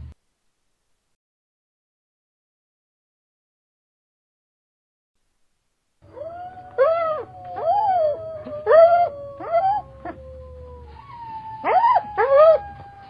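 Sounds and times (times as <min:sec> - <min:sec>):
coyotes howling: 0:06.0 - 0:13.0.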